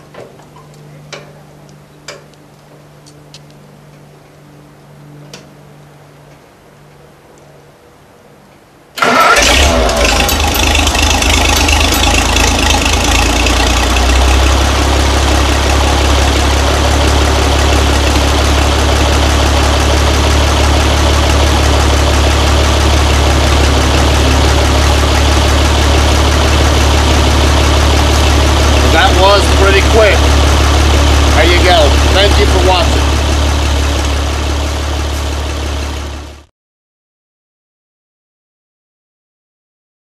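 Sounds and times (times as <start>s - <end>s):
tractor engine starting and running: 8.9s - 36.5s.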